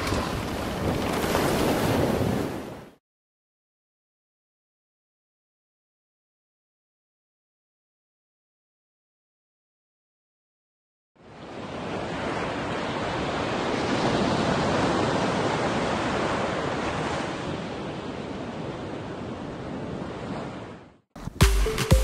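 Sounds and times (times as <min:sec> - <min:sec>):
sea waves washing: 0:00.0 - 0:03.0, 0:11.2 - 0:20.9.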